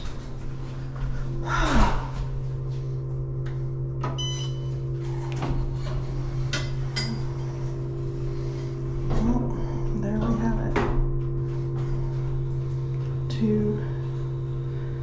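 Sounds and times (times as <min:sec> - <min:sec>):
elevator hum: 0:00.0 - 0:15.0
short electronic beep: 0:04.2 - 0:04.8.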